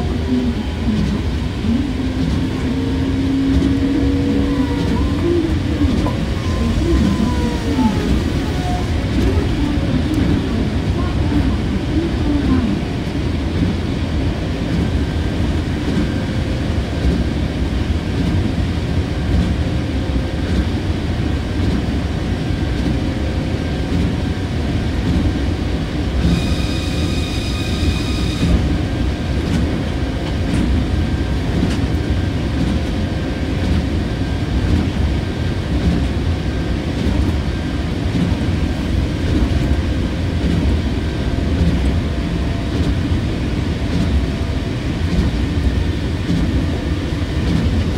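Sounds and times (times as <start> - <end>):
train tyres rumbling on guideway: 0.0 - 47.9
steady high tone: 26.3 - 28.7.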